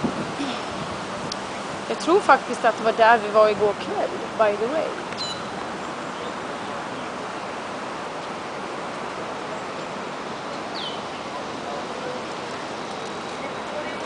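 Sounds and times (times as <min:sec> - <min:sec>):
city ambience: 0:00.0 - 0:14.0.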